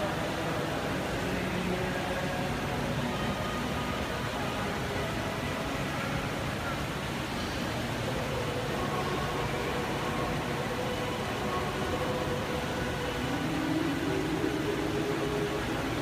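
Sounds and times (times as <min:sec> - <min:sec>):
faint steady tones: 0:00.0 - 0:16.0
hum and hiss of machinery: 0:00.0 - 0:16.0.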